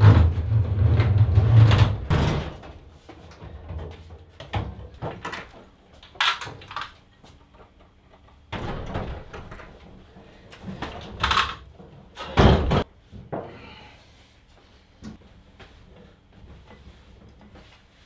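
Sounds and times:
metal tool chest clunks and knocks: 0.0s - 2.9s, 12.2s - 12.9s.

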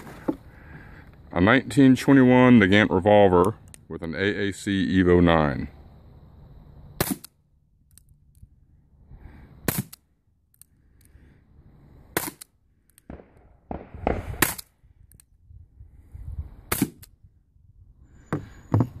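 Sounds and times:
suppressed revolver shots: 7.0s - 7.4s, 9.6s - 10.1s, 12.1s - 14.8s, 16.7s - 17.1s.

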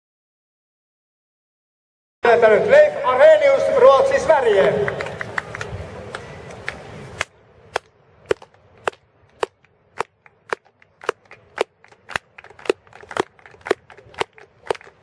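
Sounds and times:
rhythmic clapping: 4.9s - 15.0s.

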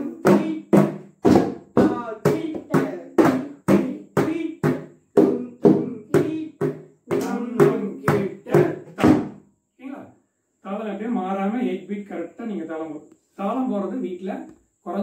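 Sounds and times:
drums played in steady strokes: 0.0s - 9.4s.

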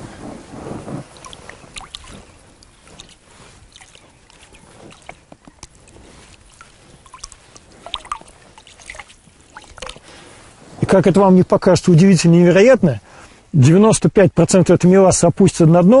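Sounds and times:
liquid dripping onto water: 1.1s - 10.1s.

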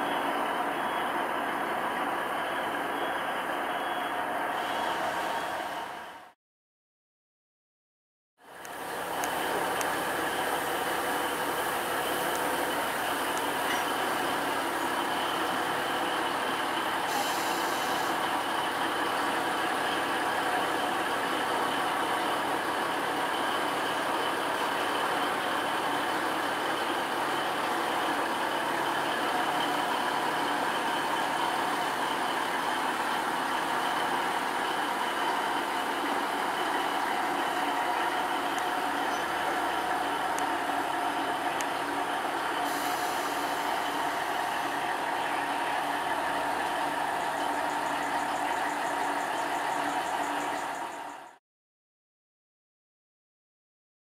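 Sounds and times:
engine idling: 0.0s - 6.4s, 8.4s - 51.4s
brief high hiss: 17.1s - 18.2s, 42.7s - 44.2s.

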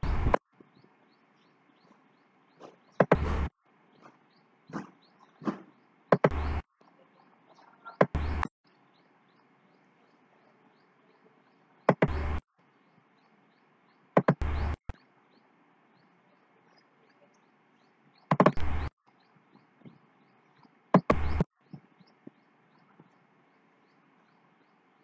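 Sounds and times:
sharp knocking thuds: 2.6s - 6.6s, 8.0s - 8.5s, 11.9s - 12.4s, 14.2s - 14.9s, 18.3s - 18.9s, 21.0s - 22.4s.

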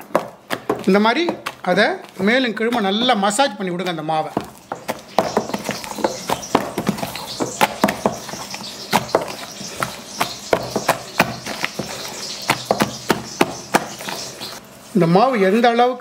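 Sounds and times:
hand beating batter in a bowl: 0.0s - 14.6s.

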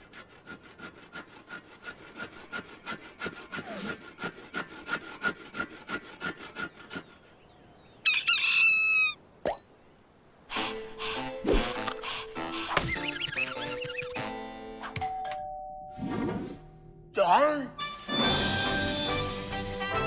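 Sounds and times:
handsaw sawing wood: 0.0s - 7.5s
rooster crowing: 8.0s - 9.2s.

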